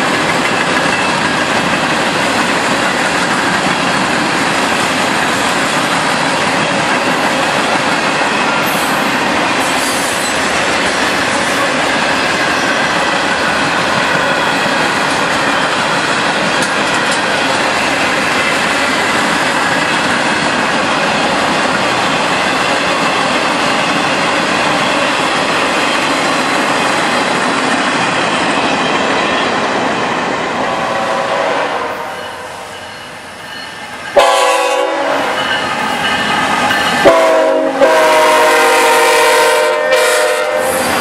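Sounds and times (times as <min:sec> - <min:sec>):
train wheels rumbling on rails: 0:00.0 - 0:41.0
high wheel squeal: 0:08.6 - 0:12.8.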